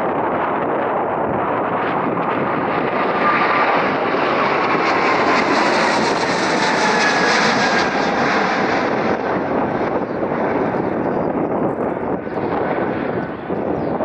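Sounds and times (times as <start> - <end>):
jet engines roaring: 0.0 - 14.0.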